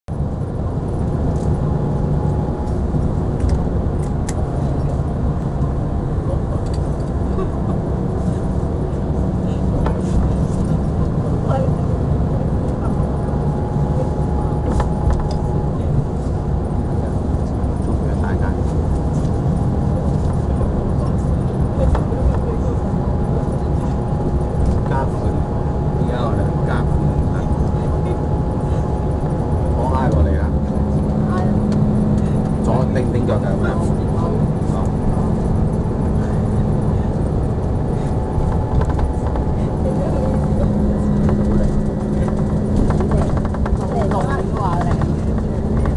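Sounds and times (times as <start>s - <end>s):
vehicle engine and road noise: 0.0s - 45.9s
light rattling knocks: 37.3s - 45.9s.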